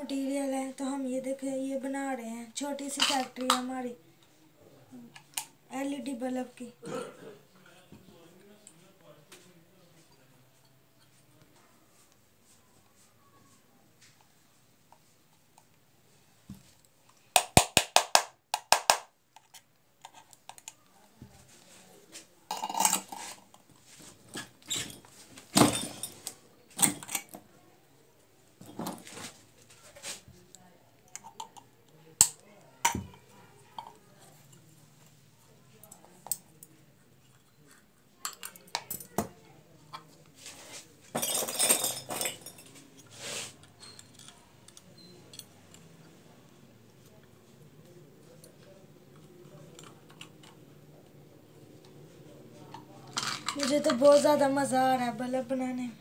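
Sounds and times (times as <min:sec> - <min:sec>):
plastic parts clattering: 0:24.2 - 0:27.4, 0:53.1 - 0:54.3
clatter of metal and plastic parts: 0:53.1 - 0:54.3.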